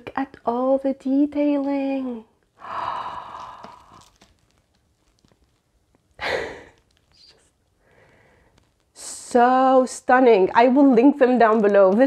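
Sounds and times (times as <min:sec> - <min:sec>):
sharp breath: 0:02.6 - 0:04.1
woman sighing: 0:02.6 - 0:04.1, 0:06.2 - 0:06.8
book handling ticks: 0:03.1 - 0:09.0.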